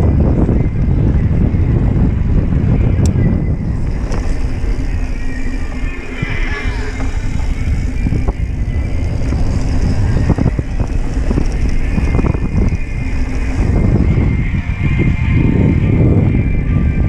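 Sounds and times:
bike knocking and rattling: 0.0 - 16.4
wind rumbling on microphone: 0.0 - 17.0.

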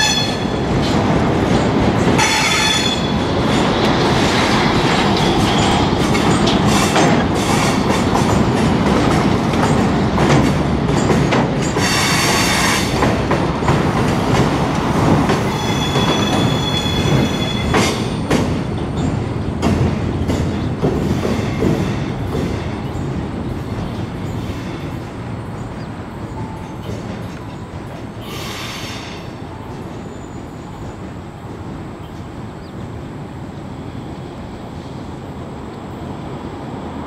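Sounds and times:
freight train wheels clattering: 0.0 - 33.0
train wheels squealing: 15.4 - 18.2, 26.3 - 31.1.

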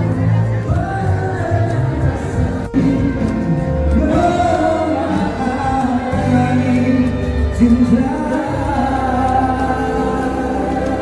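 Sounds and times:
music accompaniment: 0.0 - 11.0.

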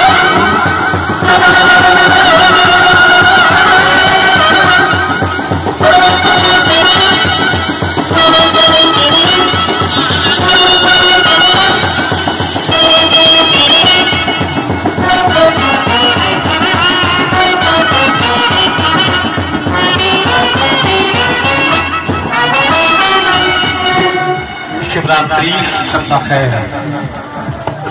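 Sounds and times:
brass band melody: 0.0 - 27.6
steady drum beat: 0.0 - 27.9.

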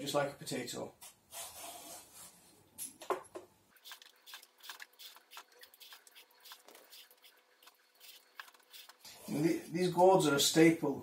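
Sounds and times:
vegetable peeler scraping gourd: 3.8 - 9.6.

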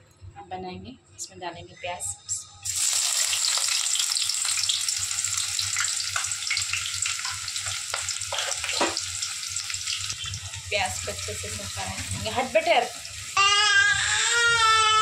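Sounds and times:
onions sizzling in hot oil: 2.6 - 14.7.

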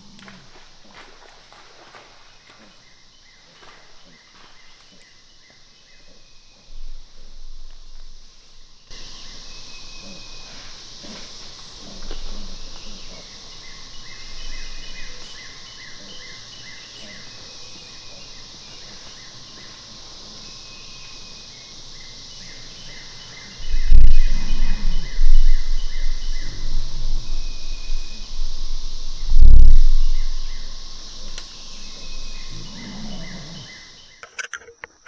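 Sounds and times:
high insect drone: 0.0 - 35.0
low rumbling on microphone: 23.6 - 33.8.

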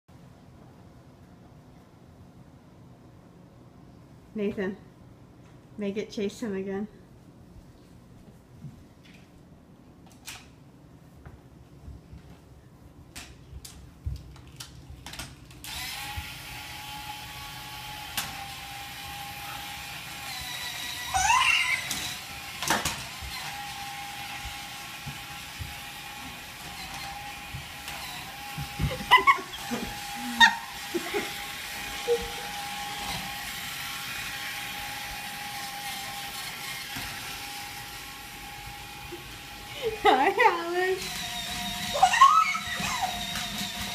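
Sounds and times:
toy car electric motor whirring: 15.6 - 24.3, 26.6 - 38.0, 41.0 - 43.9
toddler squealing: 21.0 - 22.2, 41.9 - 43.3.

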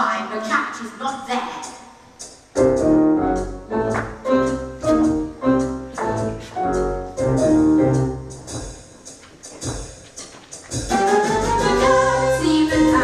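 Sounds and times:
instrumental piano music: 2.6 - 8.7.

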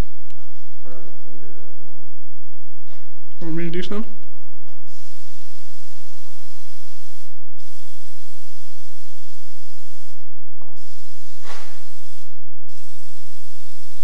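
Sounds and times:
aerosol spray can hissing: 4.9 - 14.0.

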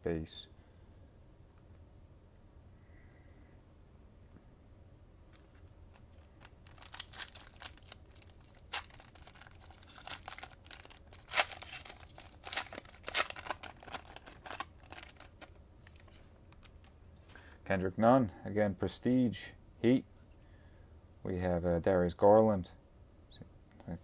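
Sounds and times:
foil wrapper tearing and crinkling: 5.9 - 16.9.

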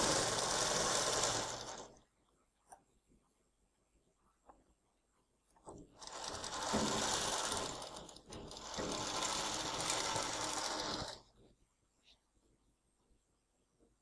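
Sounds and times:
sewing machine stitching: 0.0 - 2.0, 5.6 - 11.4.

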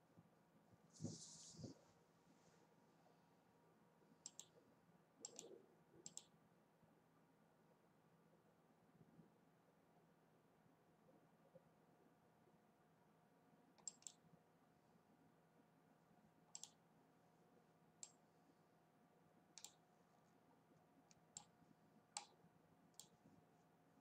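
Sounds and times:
faint steady hum: 0.0 - 24.0
computer mouse clicks: 4.2 - 4.6, 5.2 - 6.4, 13.8 - 14.2, 16.5 - 16.8, 18.0 - 18.2, 19.6 - 19.8, 21.1 - 23.2.

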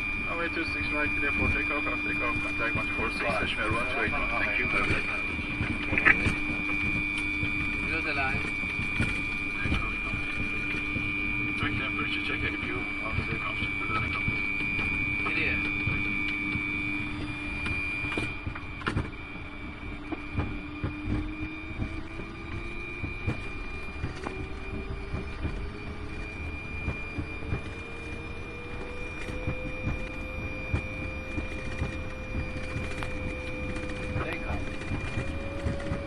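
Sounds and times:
jet engines high whine: 0.0 - 36.0.

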